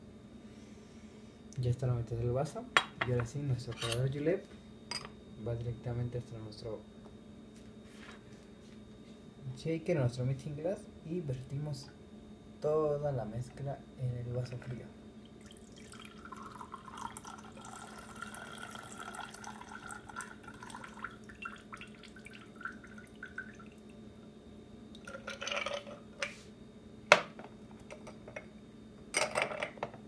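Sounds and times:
glassware and bar tools clinking: 2.8s - 4.1s
liquid trickling into glass: 15.3s - 24.0s, 25.0s - 26.0s.

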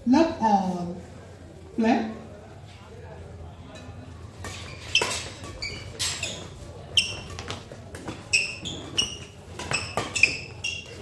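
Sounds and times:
shoes squeaking on court floor: 4.4s - 11.0s
rackets striking shuttlecock: 7.0s - 11.0s.

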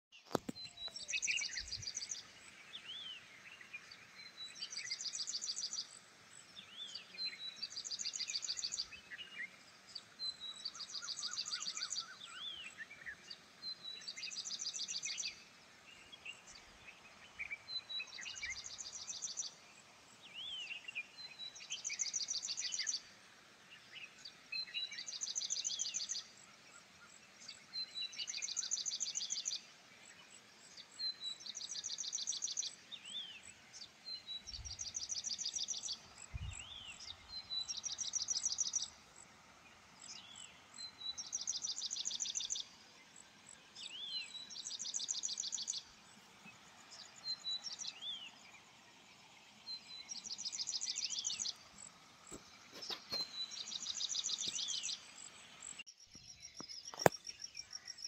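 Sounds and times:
short bird chirps: 52.3s - 55.0s.

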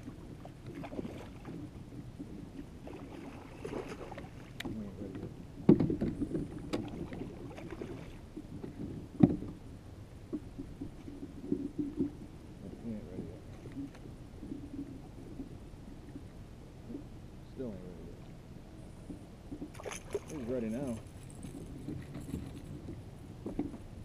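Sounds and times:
fish splashing at water surface: 2.8s - 4.6s, 19.6s - 21.0s
knocks against kayak hull: 5.7s - 6.9s, 8.8s - 9.6s.

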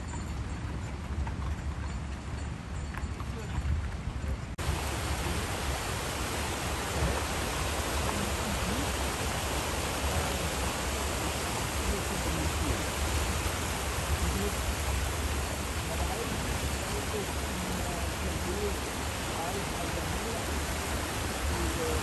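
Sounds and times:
fast-flowing water rushing: 4.6s - 22.0s.

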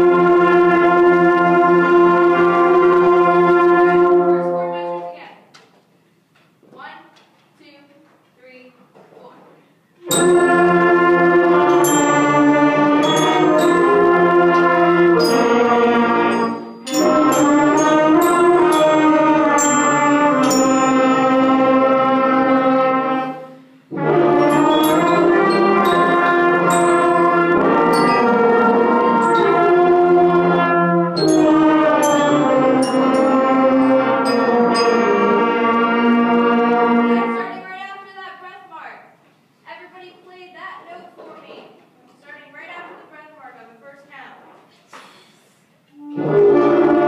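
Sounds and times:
concert band playing held chords: 10.0s - 37.4s, 46.0s - 47.0s.

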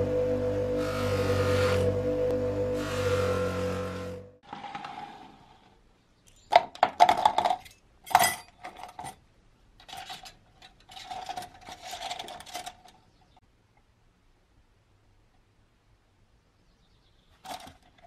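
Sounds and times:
metal parts clinking in plastic cup: 6.8s - 9.2s, 9.8s - 13.0s.

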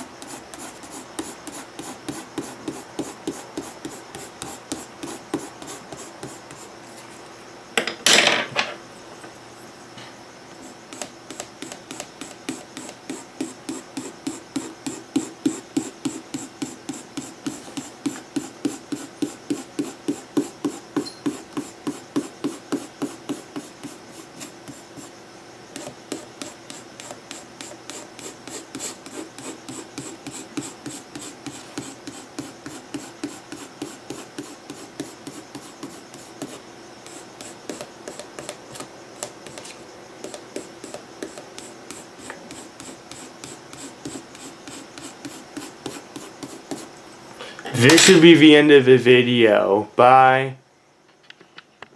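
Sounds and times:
pencil shading on paper: 0.2s - 6.7s, 10.6s - 25.1s, 25.8s - 39.6s, 40.2s - 46.9s.

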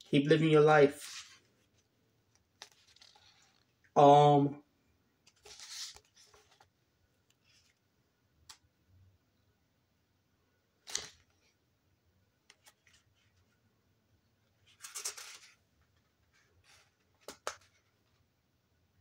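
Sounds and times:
pages rustling: 0.9s - 3.7s, 5.3s - 7.8s, 10.8s - 11.5s, 14.6s - 18.2s
book pages snapping and flicking: 2.6s - 3.6s, 10.8s - 11.3s, 17.2s - 17.8s.

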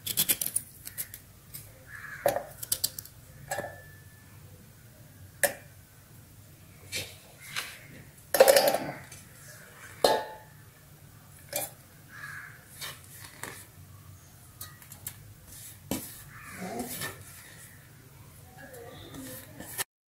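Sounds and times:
knocks on steel jar: 10.0s - 10.5s.

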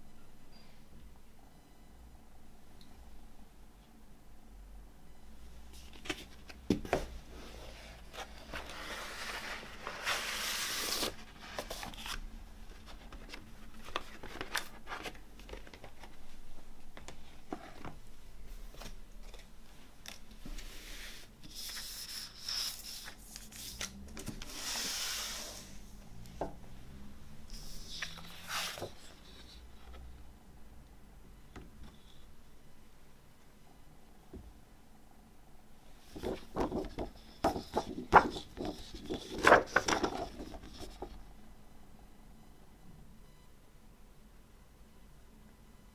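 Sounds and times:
paper rustling and sliding: 5.8s - 16.2s, 20.4s - 25.9s, 27.5s - 30.0s, 36.0s - 41.2s.

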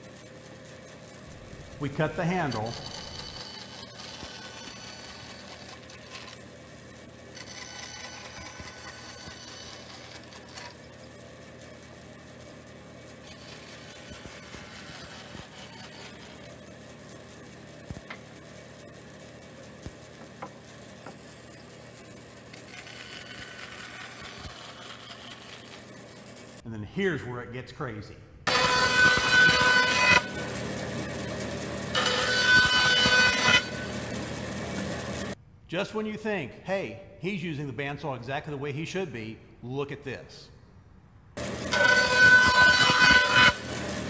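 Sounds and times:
band saw cutting wood: 1.2s - 6.6s, 7.2s - 11.2s, 13.2s - 16.8s, 22.4s - 26.0s, 28.5s - 35.4s, 41.4s - 44.0s.

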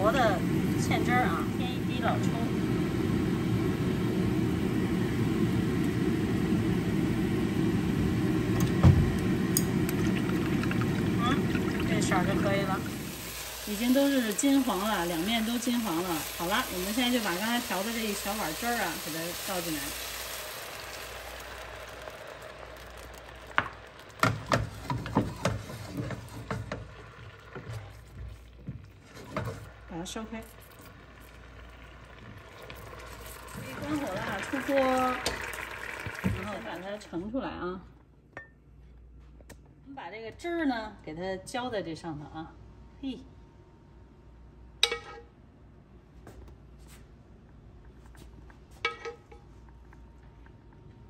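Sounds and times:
sauce sizzling in a frying pan: 2.2s - 28.5s, 29.4s - 37.1s
pan knocking on metal stove grate: 23.5s - 25.6s.

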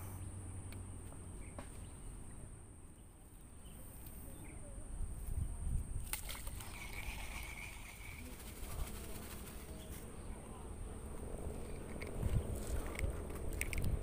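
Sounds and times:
buzzing insect call: 6.0s - 10.1s.

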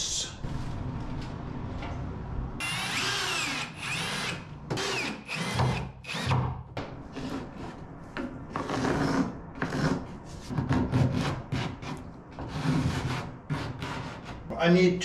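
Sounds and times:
cordless drill driving screws: 2.6s - 6.3s.

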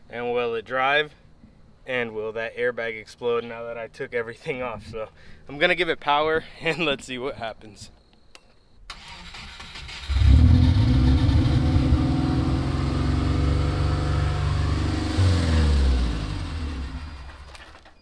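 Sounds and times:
car engine starting and stalling: 8.9s - 18.0s.

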